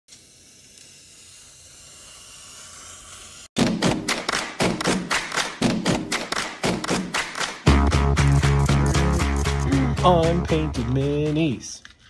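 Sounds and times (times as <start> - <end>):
loud music with strong beat: 3.6 - 11.3.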